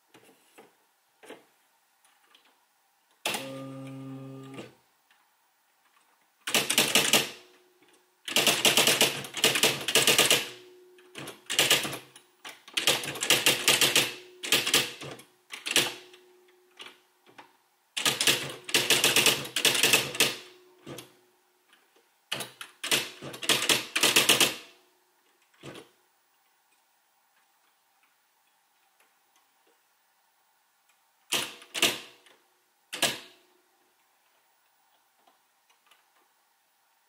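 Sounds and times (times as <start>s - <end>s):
faint steady hum: 0.0s - 23.4s, 24.7s - 31.4s, 32.1s - 37.0s
electronic typewriter clattering strikes: 3.2s - 4.7s, 6.5s - 7.4s, 8.3s - 16.1s, 18.0s - 21.0s, 22.3s - 24.6s.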